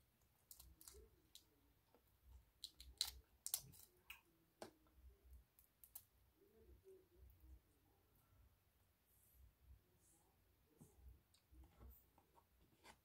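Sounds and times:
shrimp shells cracking: 0:02.6 - 0:03.9.

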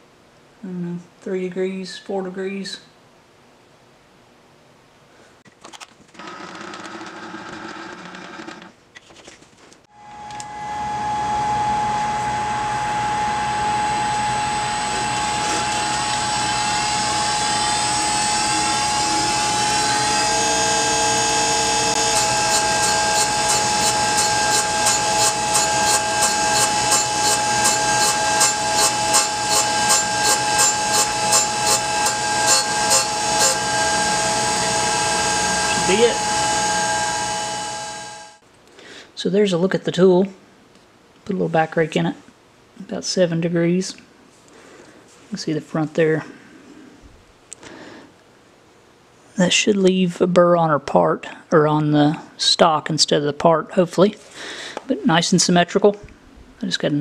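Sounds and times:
grinder whining: 0:06.2 - 0:08.7, 0:10.0 - 0:38.4
grinding wheel cutting metal blade: 0:10.6 - 0:38.4.

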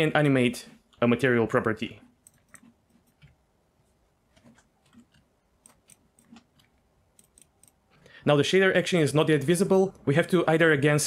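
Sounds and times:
mouse and keyboard clicks: 0:04.3 - 0:08.0.

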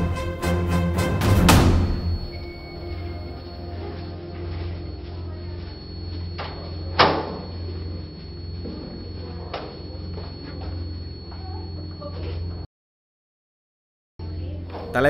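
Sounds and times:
low steady hum: 0:00.0 - 0:12.7
loud thud: 0:01.2 - 0:02.5.

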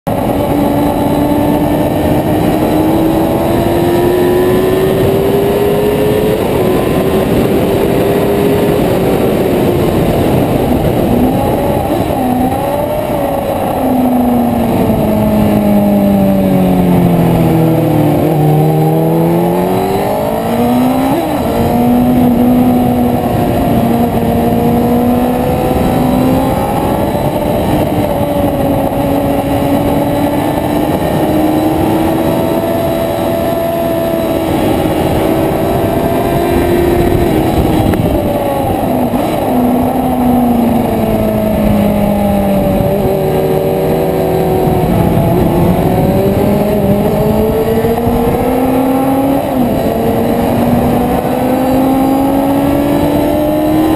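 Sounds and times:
motorcycle engine at high revs: 0:00.0 - 0:53.9
wind rush: 0:00.1 - 0:53.9.

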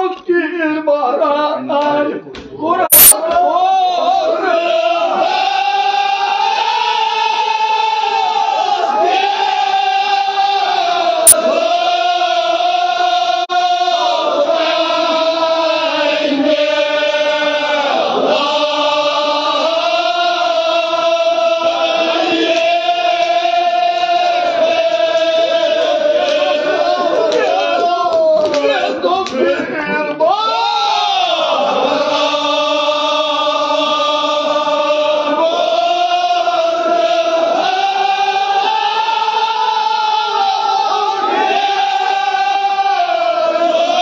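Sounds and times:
group singing in unison: 0:01.0 - 0:44.0
sharp click: 0:02.9 - 0:03.2.

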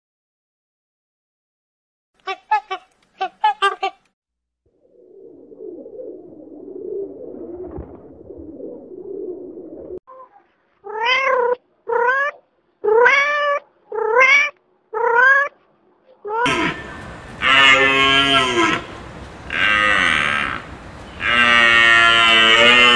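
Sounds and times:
pigeons cooing: 0:04.8 - 0:10.0, 0:16.4 - 0:22.9
kitten meowing: 0:10.9 - 0:15.5.

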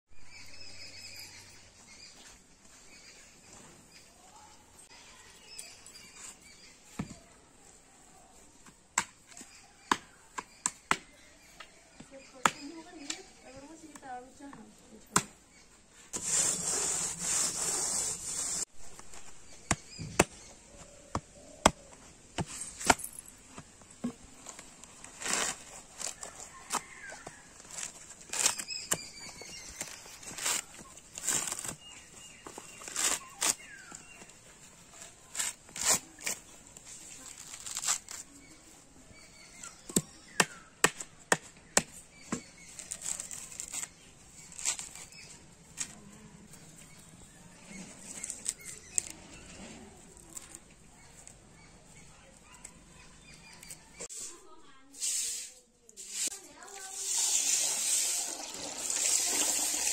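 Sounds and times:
husk tearing: 0:24.4 - 0:38.6, 0:42.6 - 0:46.0.

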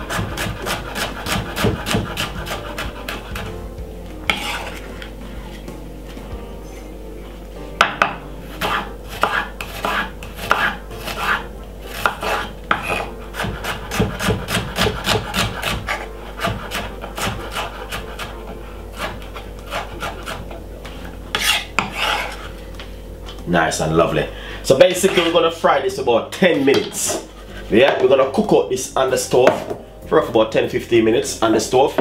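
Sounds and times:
knife chopping on wooden board: 0:00.0 - 0:03.6, 0:04.3 - 0:04.8, 0:07.8 - 0:20.5, 0:29.4 - 0:29.8.

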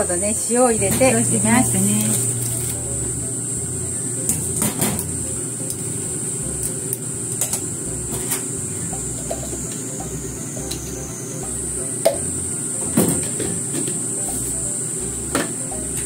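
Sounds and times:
water boiling: 0:00.0 - 0:16.0
colander and utensils clattering: 0:12.8 - 0:14.4.

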